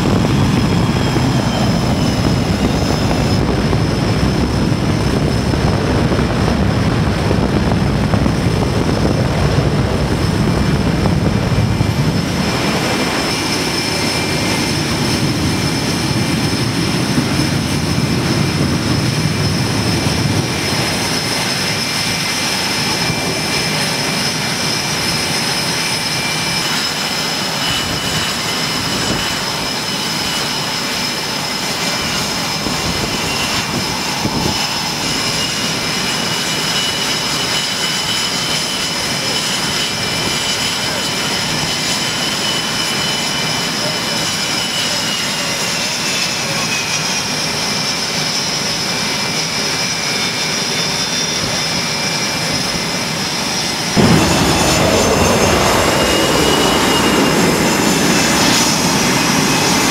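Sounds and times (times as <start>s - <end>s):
deep engine rumble: 0.0s - 25.1s, 53.6s - 59.9s
jet engines whining: 0.0s - 59.9s.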